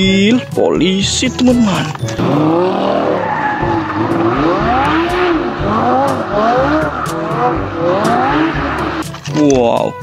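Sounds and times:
tyres squealing: 0.2 - 9.0
sports car engine revving: 2.1 - 9.1.

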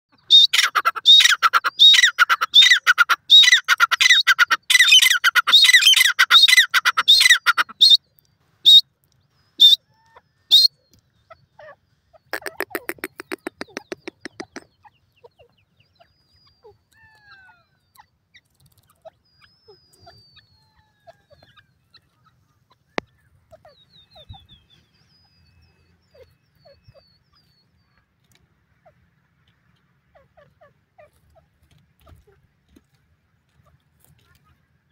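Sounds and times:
francolin shrill calls: 0.2 - 8.0, 9.5 - 10.8
faint bird chirps: 4.7 - 29.0.

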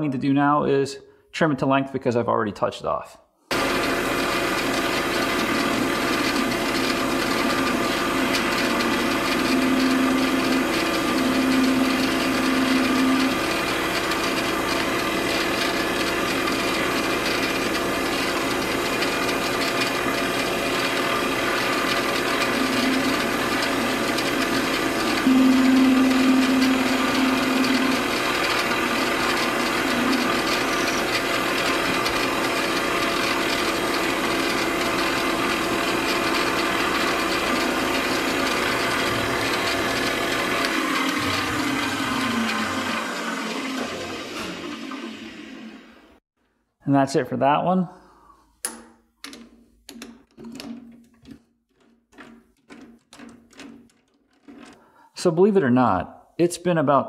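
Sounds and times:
metal lathe motor and gears running: 3.5 - 46.0
low hum: 25.2 - 31.2.

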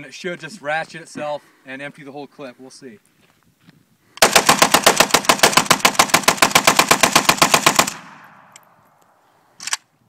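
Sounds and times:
rifle rapid fire: 4.2 - 8.6.

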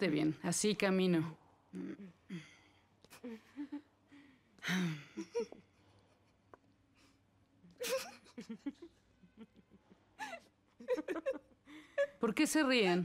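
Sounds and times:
women giggling: 3.1 - 3.9, 5.0 - 5.7, 7.8 - 12.2.

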